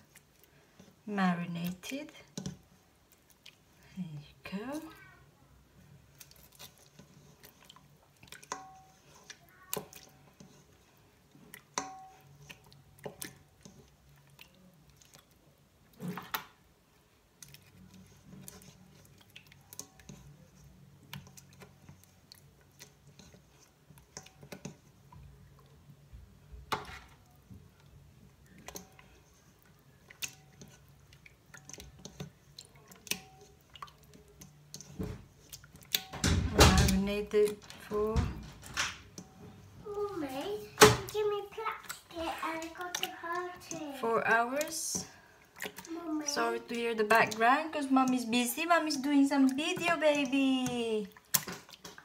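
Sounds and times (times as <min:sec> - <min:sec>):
wet squishing of meat: 0:02.2 - 0:05.2, 0:05.8 - 0:36.2, 0:39.2 - 0:52.0.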